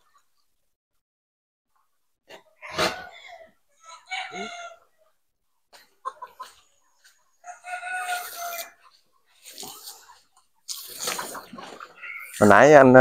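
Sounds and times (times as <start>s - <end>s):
rooster crowing: 2.6s - 4.9s, 7.4s - 8.8s
chicken call: 2.6s - 5.0s, 7.4s - 8.9s.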